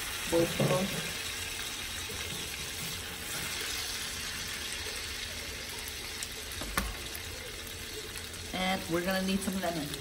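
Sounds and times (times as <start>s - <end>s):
fish sizzling in a skillet: 0.0s - 10.0s.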